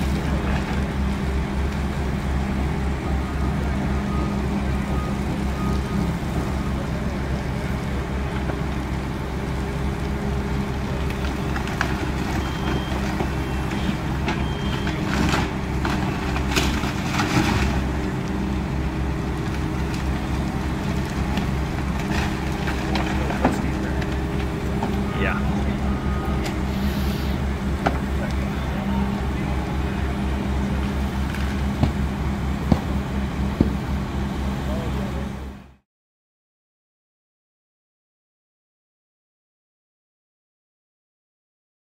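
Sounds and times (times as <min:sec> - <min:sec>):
diesel engines droning: 0:00.0 - 0:35.8
timber cracking and crashing: 0:11.1 - 0:18.4, 0:19.4 - 0:25.0.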